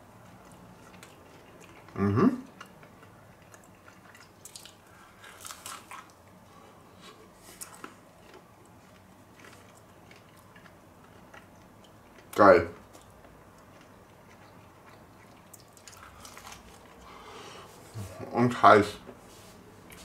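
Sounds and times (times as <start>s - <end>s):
person chewing food: 0.0s - 17.8s
person humming: 2.0s - 2.4s.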